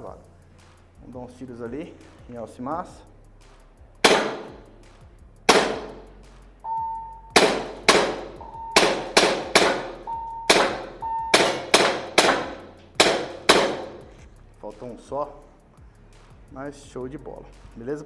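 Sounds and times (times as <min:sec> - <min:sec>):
air pistol shots cracking: 0:04.0 - 0:04.7, 0:05.5 - 0:06.2, 0:07.3 - 0:14.0
electronic target beeps: 0:06.6 - 0:07.4, 0:08.4 - 0:09.2, 0:09.8 - 0:11.7.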